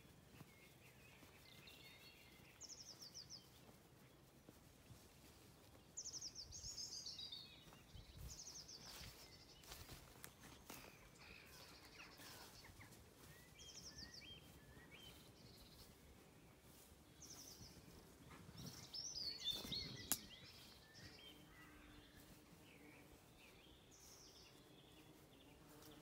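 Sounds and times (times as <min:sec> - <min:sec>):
songbirds trilling and chirping: 0:00.0 - 0:26.0.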